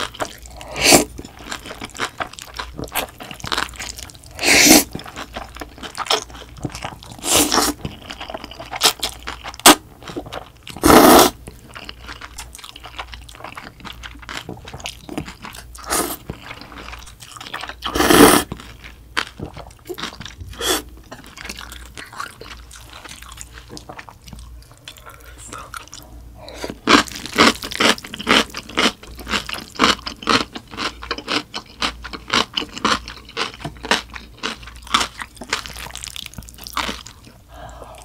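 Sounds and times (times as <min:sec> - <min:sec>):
wet chewing and crunching: 0:00.0 - 0:38.0
slurping noodles: 0:00.6 - 0:01.1, 0:04.4 - 0:04.9, 0:07.2 - 0:07.8, 0:10.8 - 0:11.4, 0:15.8 - 0:16.2, 0:17.9 - 0:18.5.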